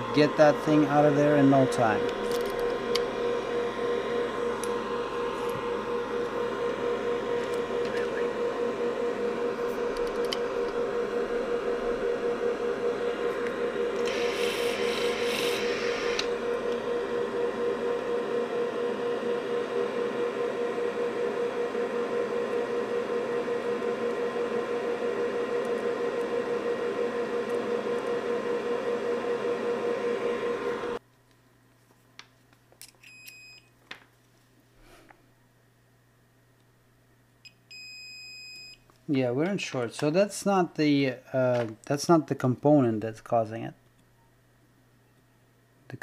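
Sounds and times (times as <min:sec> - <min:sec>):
hot-air station blowing: 0:00.0 - 0:31.0.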